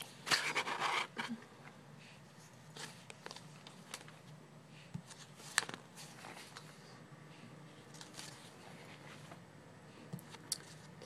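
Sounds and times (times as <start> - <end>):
paper pages rustling: 2.7 - 4.4, 5.0 - 7.0, 7.8 - 9.4.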